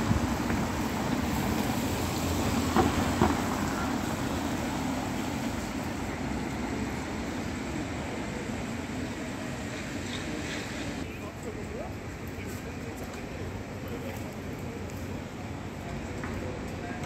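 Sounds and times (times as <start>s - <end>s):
cars passing: 0.0s - 11.1s.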